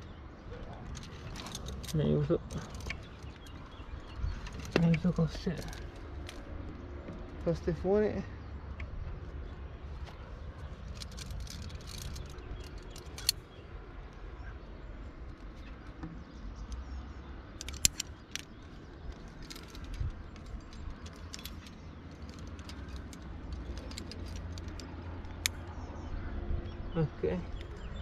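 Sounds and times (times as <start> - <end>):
metal climbing gear clinking: 0.7 - 7.5, 10.0 - 13.7, 17.5 - 25.6.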